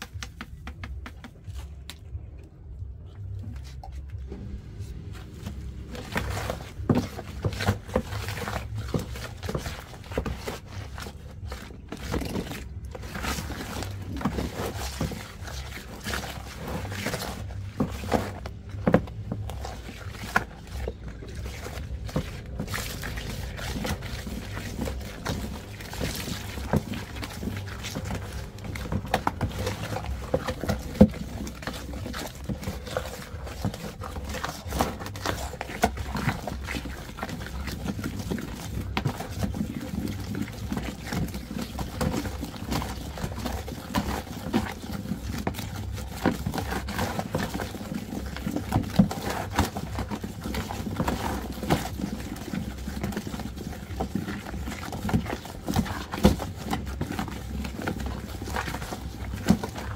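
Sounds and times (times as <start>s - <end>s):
wet paste squelching and scraping: 0.0s - 59.9s
low rumble: 1.6s - 10.0s.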